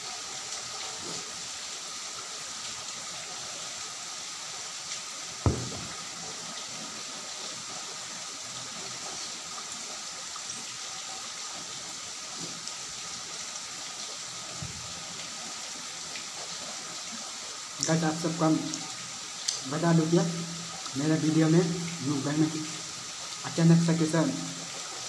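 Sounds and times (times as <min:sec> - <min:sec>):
faint thuds: 0:05.5 - 0:06.0
sharp low knock: 0:05.5 - 0:06.0.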